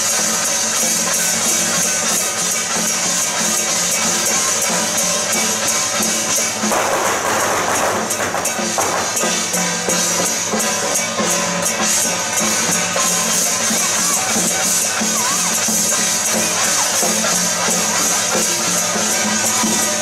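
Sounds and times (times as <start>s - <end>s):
drums and clashing cymbals: 0.0s - 20.0s
burst of rough noise: 6.2s - 10.7s.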